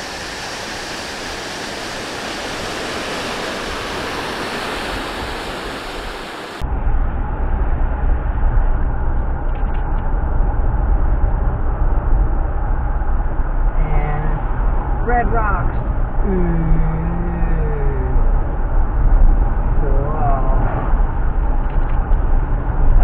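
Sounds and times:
rushing water hiss: 0.0s - 6.6s
low uneven rumble: 0.0s - 23.0s.

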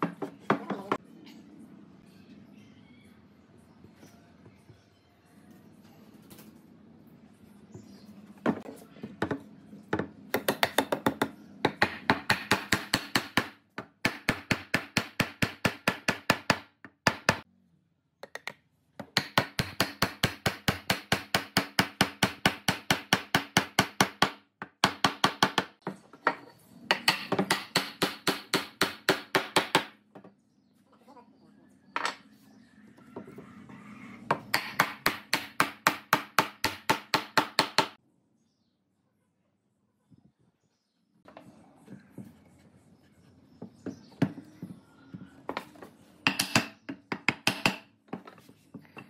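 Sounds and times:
hammer striking wood: 10.0s - 17.4s, 19.0s - 25.8s, 26.9s - 30.0s, 34.3s - 38.0s, 46.3s - 48.3s.

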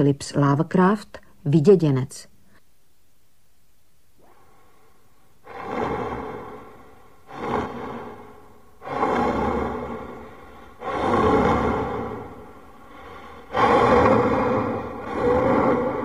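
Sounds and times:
rushing breath-like swells: 4.2s - 16.0s.

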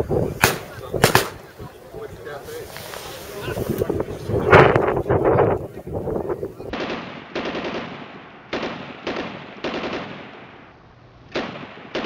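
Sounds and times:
automatic gunfire bursts: 0.4s - 1.4s, 6.7s - 10.2s.

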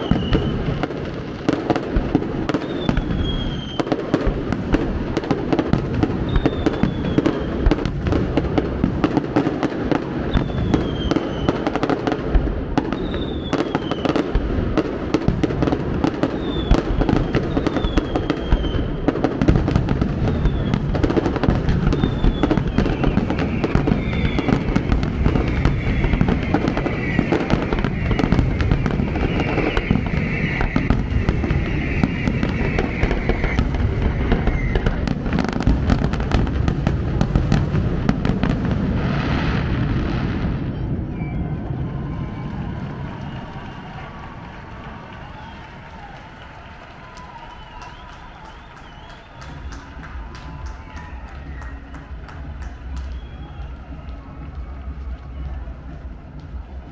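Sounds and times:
falling firework whistles: 0.0s - 54.2s
firework bangs and crackles: 0.0s - 56.9s.

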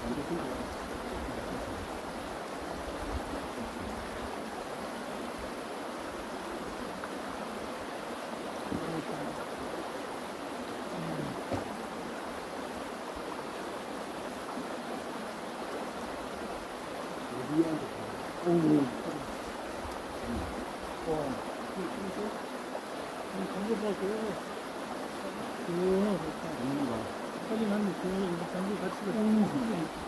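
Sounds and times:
stream water rushing: 0.0s - 30.0s.

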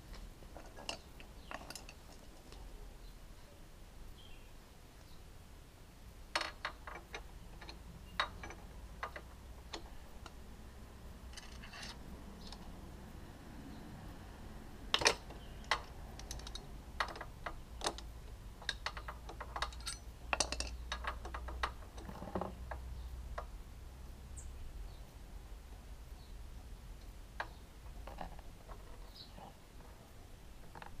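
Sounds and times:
faint steady hum: 0.0s - 31.0s
metal tool tapping engine casing: 18.6s - 22.2s.

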